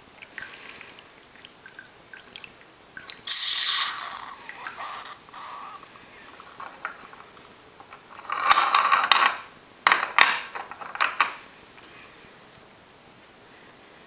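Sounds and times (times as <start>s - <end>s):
ceramic cups clinking on metal tray: 6.4s - 11.5s.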